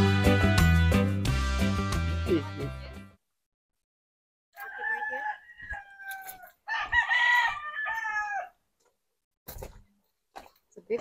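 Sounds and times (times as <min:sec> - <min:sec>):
rooster crowing: 0:04.6 - 0:08.6.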